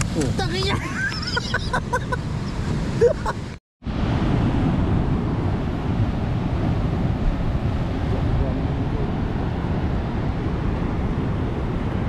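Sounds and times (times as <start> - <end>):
wind buffeting the microphone: 3.9 - 12.0.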